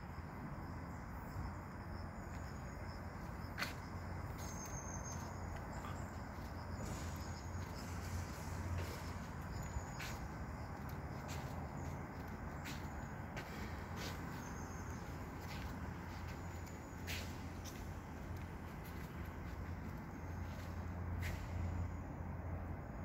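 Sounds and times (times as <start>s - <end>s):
faint high-pitched chirps: 2.2s - 13.2s.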